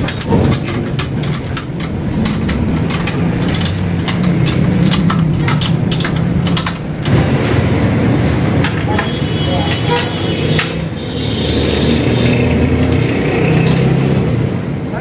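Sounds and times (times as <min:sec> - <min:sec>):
metallic clicks and knocks: 0:00.0 - 0:07.5, 0:08.3 - 0:10.9, 0:12.8 - 0:14.0.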